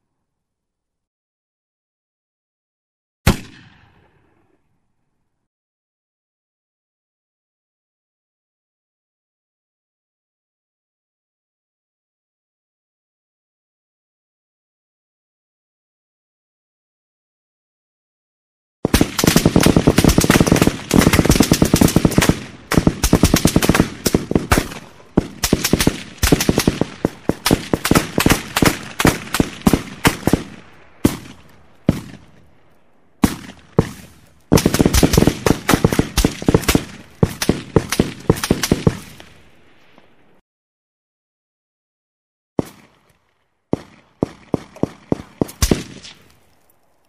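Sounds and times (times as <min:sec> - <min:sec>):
automatic rifle gunfire: 0:18.8 - 0:32.3, 0:33.2 - 0:39.3, 0:43.7 - 0:46.3.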